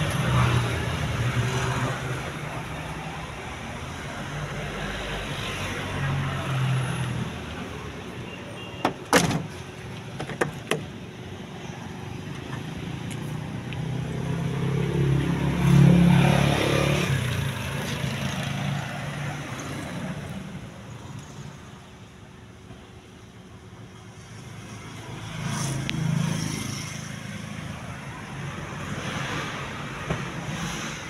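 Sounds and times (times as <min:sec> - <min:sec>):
car door latch clicking: 0:08.8 - 0:11.0
vehicle passing: 0:12.8 - 0:20.2.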